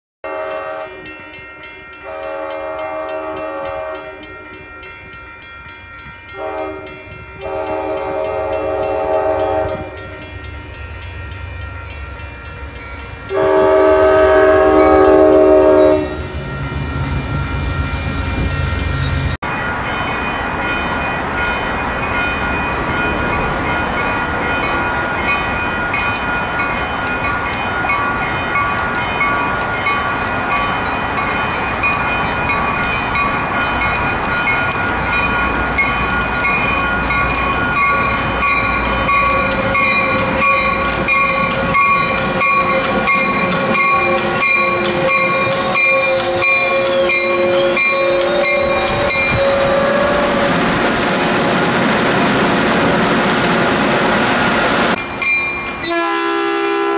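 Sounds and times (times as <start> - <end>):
locomotive air horn blasts: 0.2 - 1.1, 2.0 - 4.3, 6.3 - 10.0, 13.3 - 16.3, 55.8 - 56.9
train approaching with wheel noise: 0.2 - 56.9.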